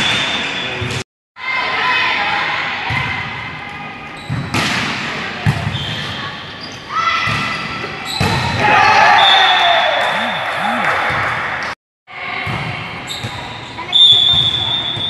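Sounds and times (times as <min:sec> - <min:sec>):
players' voices: 0:09.8 - 0:11.4.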